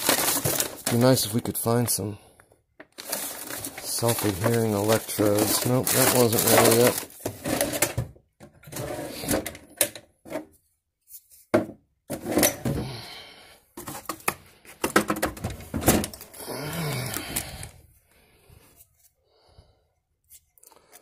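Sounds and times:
objects knocking and clattering: 2.8 - 10.6, 11.5 - 12.9, 13.8 - 16.3
rustling: 3.0 - 7.8.

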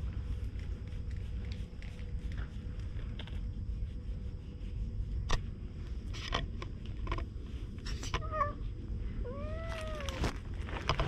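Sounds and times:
cat meowing: 9.3 - 10.3.

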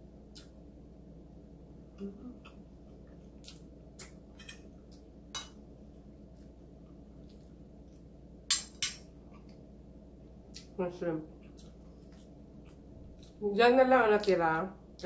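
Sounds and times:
chewing and mouth clicks: 2.4 - 4.2, 10.5 - 10.8, 11.4 - 13.4.

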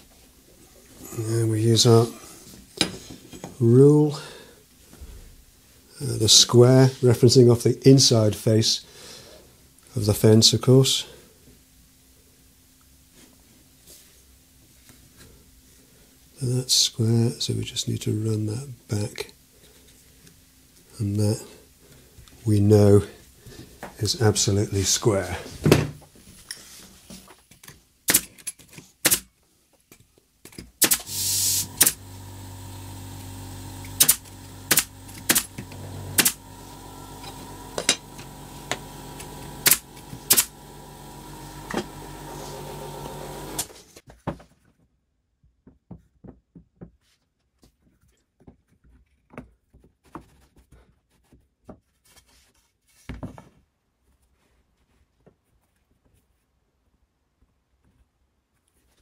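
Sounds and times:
nail gun firing: 28.1 - 28.4, 29.0 - 29.3, 30.8 - 32.1, 33.8 - 36.5, 37.2 - 40.6
air compressor humming: 30.8 - 44.0.

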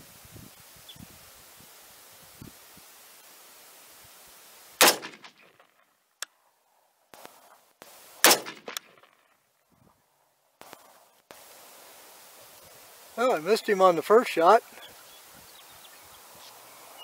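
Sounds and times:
rifle shots with echo: 4.8 - 5.4, 8.2 - 9.1.

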